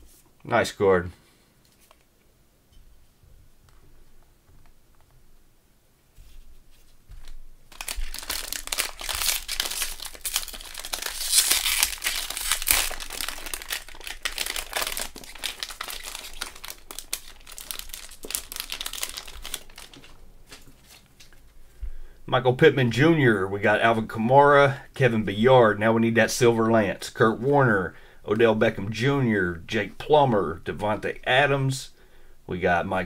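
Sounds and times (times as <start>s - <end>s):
plastic wrapper crinkling and tearing: 7.2s - 21.4s.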